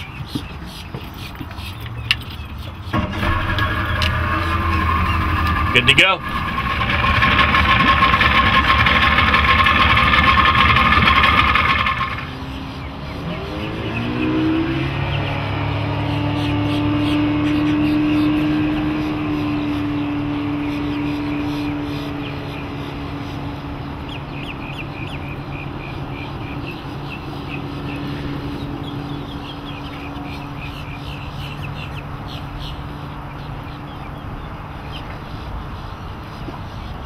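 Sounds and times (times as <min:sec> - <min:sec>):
birds chirping: 0:00.0 - 0:37.0
outboard motor running: 0:02.9 - 0:12.4, 0:15.0 - 0:33.2.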